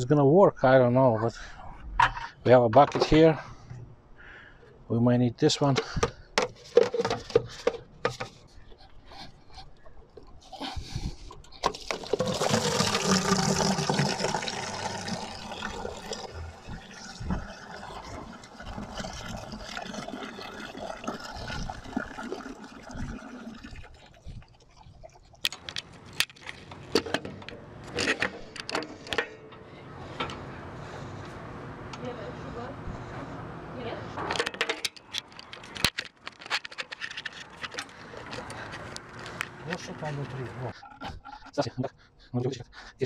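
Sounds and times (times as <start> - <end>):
coolant pouring into plastic bucket: 11.6 - 24.7.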